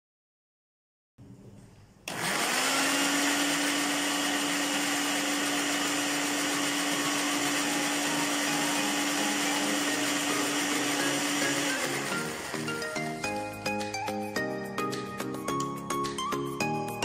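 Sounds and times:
food processor motor whirring: 0:02.1 - 0:13.4.

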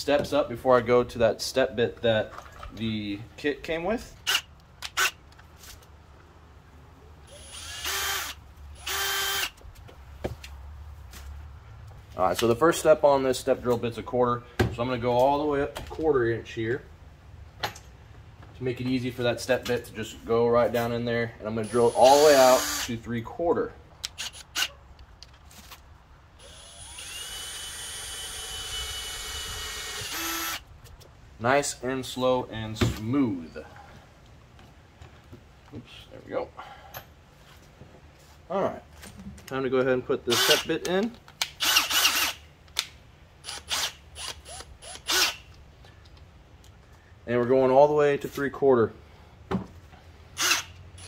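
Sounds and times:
power drill whining: 0:07.3 - 0:09.6, 0:21.6 - 0:22.9, 0:26.4 - 0:30.6, 0:40.3 - 0:40.6, 0:41.6 - 0:42.4, 0:43.4 - 0:45.4, 0:50.4 - 0:51.0.

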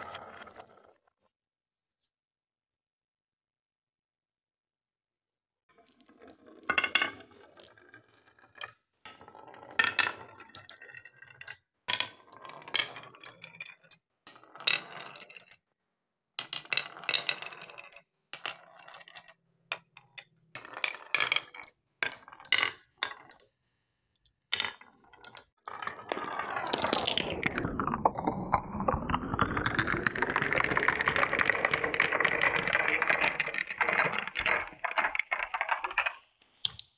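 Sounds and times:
marbles rolling on wood: 0:00.0 - 0:01.0, 0:05.9 - 0:15.7, 0:16.4 - 0:23.5, 0:24.2 - 0:36.9
glass marbles clicking together: 0:10.6 - 0:10.8, 0:12.3 - 0:15.6, 0:16.4 - 0:18.0, 0:18.8 - 0:19.4, 0:20.2 - 0:23.5, 0:25.2 - 0:25.5.

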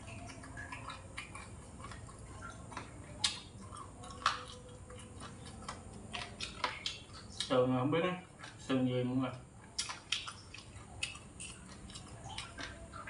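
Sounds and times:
chewing crunchy food: 0:00.0 - 0:13.0.

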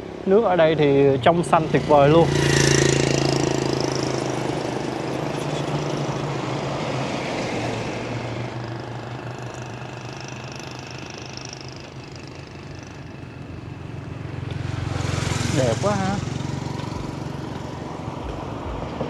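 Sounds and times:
vehicle engine running: 0:07.6 - 0:19.0.

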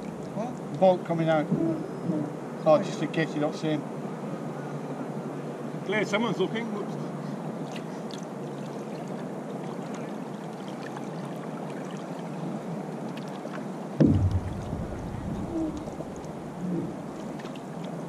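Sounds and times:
water rushing along a hull: 0:00.0 - 0:01.0, 0:05.9 - 0:18.0
light water splashes: 0:07.6 - 0:18.0
loud low thump: 0:14.0 - 0:16.6
low rumble: 0:14.0 - 0:17.2.

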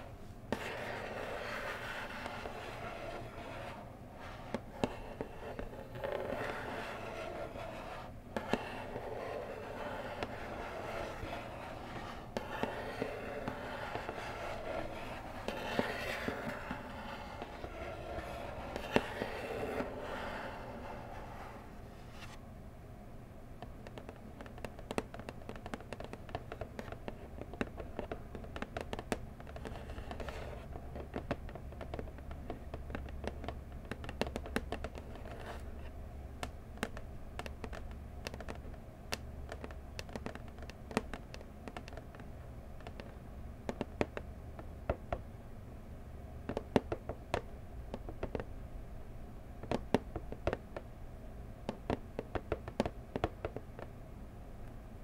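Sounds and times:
fingernails tapping cardboard: 0:00.0 - 0:21.5, 0:23.6 - 0:45.3, 0:46.4 - 0:48.5, 0:49.6 - 0:50.9, 0:51.6 - 0:53.9
fingernails scratching cardboard: 0:00.0 - 0:21.6.

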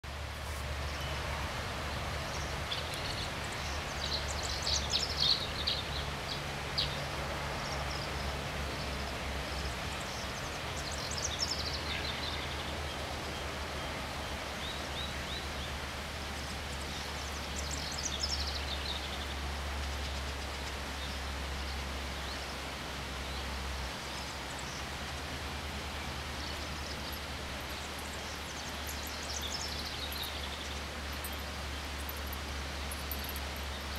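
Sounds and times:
river rushing: 0:00.1 - 0:33.9
songbird phrases: 0:08.8 - 0:15.7, 0:16.7 - 0:22.6, 0:26.0 - 0:33.9.

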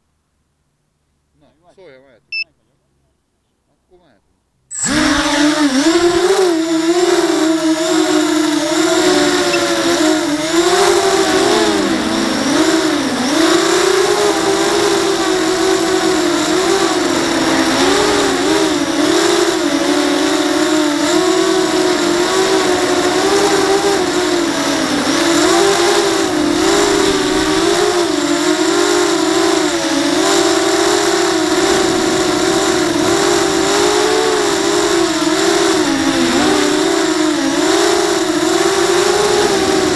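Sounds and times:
quadcopter motors whining: 0:04.7 - 0:39.9.

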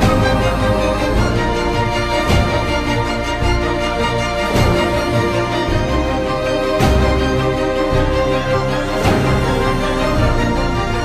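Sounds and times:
background music with sustained chords: 0:00.0 - 0:11.0.

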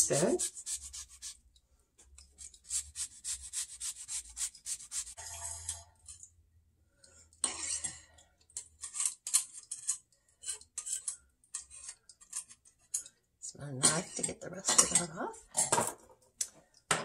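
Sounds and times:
lemon rasping on grater: 0:00.0 - 0:01.4, 0:02.4 - 0:05.2.

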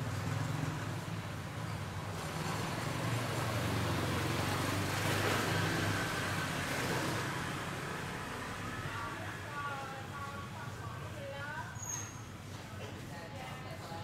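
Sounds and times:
vehicle passing: 0:00.0 - 0:10.8.

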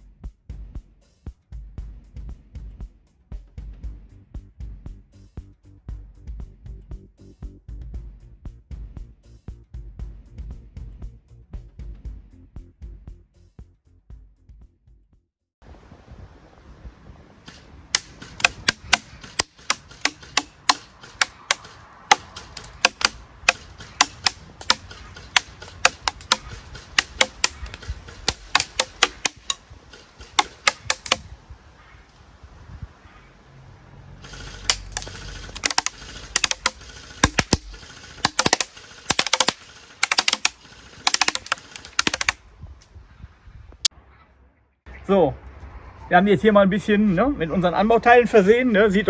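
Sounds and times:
pellets striking paper target: 0:18.0 - 0:29.6, 0:30.4 - 0:31.3, 0:34.7 - 0:42.4.

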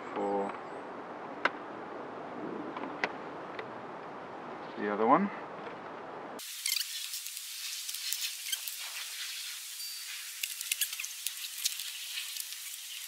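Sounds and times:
steady hiss: 0:06.4 - 0:13.0.

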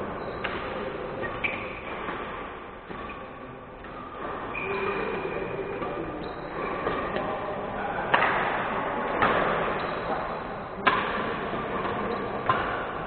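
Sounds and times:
rackets hitting shuttlecock: 0:00.4 - 0:05.1, 0:06.6 - 0:07.3, 0:08.0 - 0:13.0.

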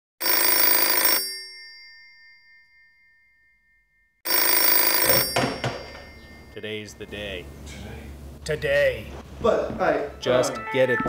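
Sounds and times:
electric bell ringing: 0:00.2 - 0:06.9.

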